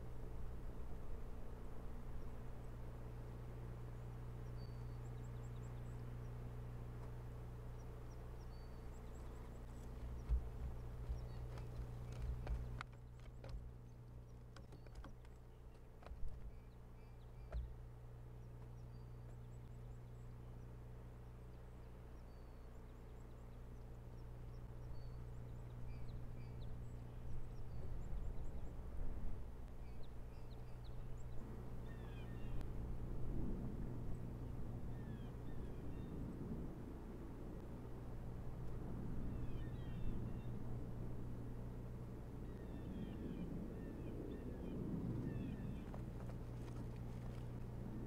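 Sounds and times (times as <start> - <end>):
low electrical hum: 0.0 - 48.0
faint bird chirps: 4.0 - 28.8
knocks and rustles of nest sticks: 9.6 - 17.9, 45.8 - 47.8.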